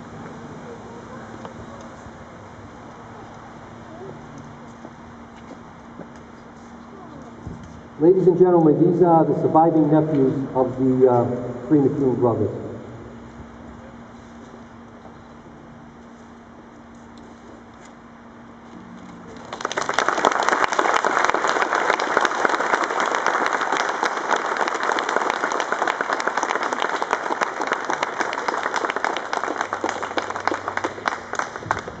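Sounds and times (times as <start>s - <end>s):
crowd applauding: 19.3s - 32.0s.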